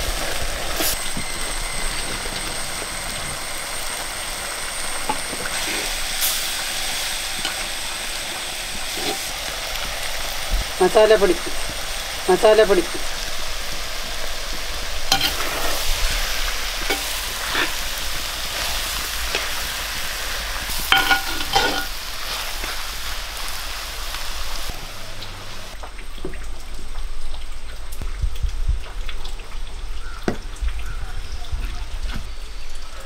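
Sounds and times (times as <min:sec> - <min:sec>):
food sizzling in a clay pot: 0:00.0 - 0:28.0
metal spoon stirring food: 0:08.7 - 0:09.3, 0:15.1 - 0:15.8, 0:16.8 - 0:17.9, 0:20.7 - 0:22.0
spoon scraping and knocking pot: 0:08.9 - 0:09.3, 0:15.1 - 0:15.6, 0:16.8 - 0:17.7, 0:20.9 - 0:22.0.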